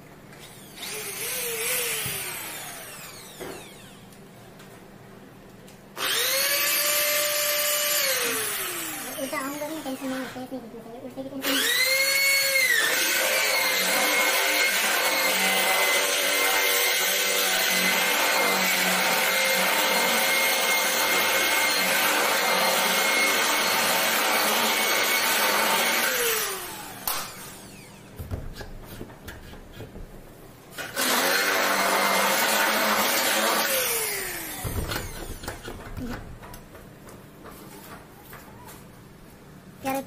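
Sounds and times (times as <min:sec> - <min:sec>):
electric drill boring into metal: 0:00.4 - 0:04.0, 0:06.0 - 0:10.0, 0:11.4 - 0:28.2, 0:30.8 - 0:35.5.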